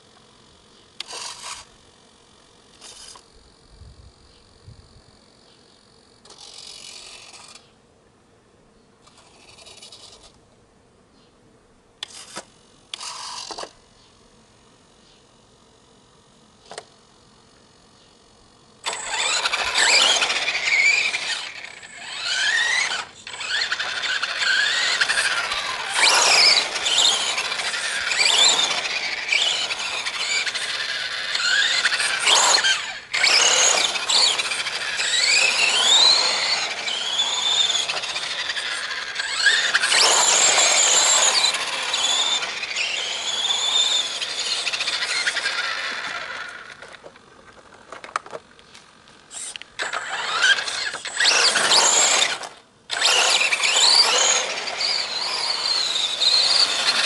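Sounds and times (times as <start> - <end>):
model car motor whining: 1.0 - 1.8, 2.7 - 3.3, 6.2 - 7.7, 9.0 - 10.4, 12.0 - 13.8, 18.8 - 57.0.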